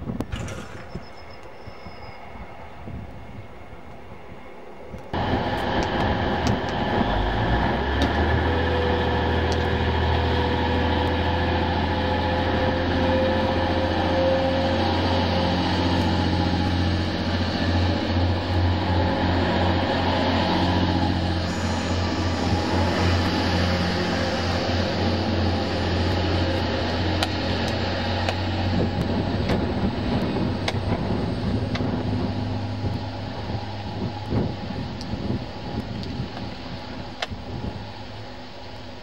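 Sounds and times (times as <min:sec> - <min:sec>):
diesel train engine drone: 0:00.0 - 0:39.0
high whine: 0:00.1 - 0:39.0
faint train moving off: 0:00.3 - 0:39.0.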